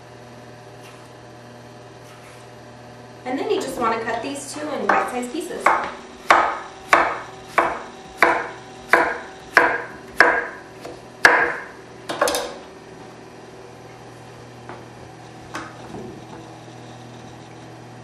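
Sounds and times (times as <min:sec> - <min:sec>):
knife chopping on wooden board: 0:04.9 - 0:12.3.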